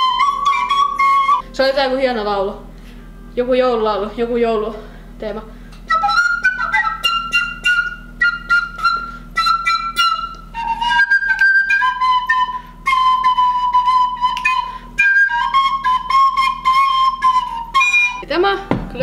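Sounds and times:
recorder playing a tune: 0.0s - 1.6s, 5.9s - 18.3s.

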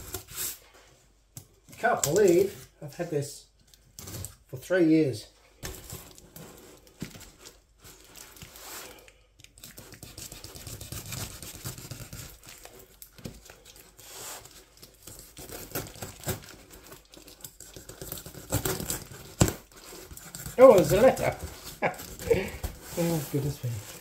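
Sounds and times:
knife cutting cardboard and tape: 0.0s - 0.6s, 7.9s - 24.0s
tape and cardboard tearing: 9.5s - 24.0s.

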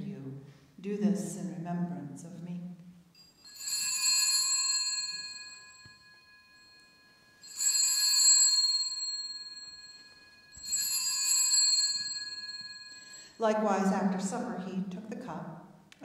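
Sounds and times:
altar bell ringing: 3.1s - 13.4s.

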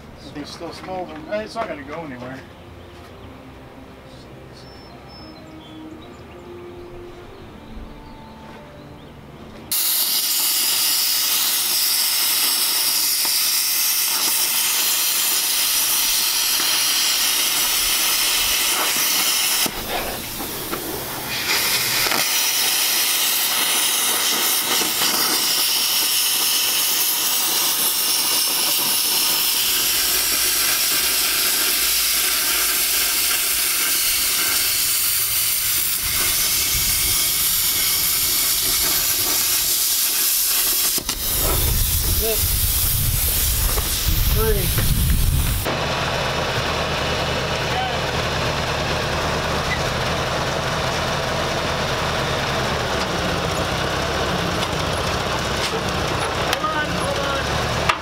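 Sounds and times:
plasma cutter hissing: 9.7s - 45.7s.

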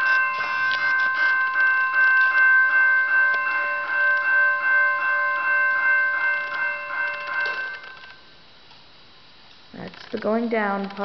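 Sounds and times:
railroad crossing bell dinging: 0.0s - 8.3s.

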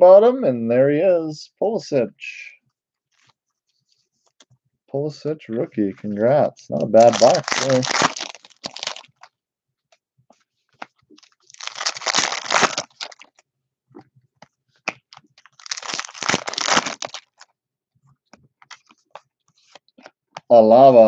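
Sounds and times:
foil wrappers crinkling: 6.8s - 9.3s, 11.2s - 13.4s, 15.4s - 17.4s.

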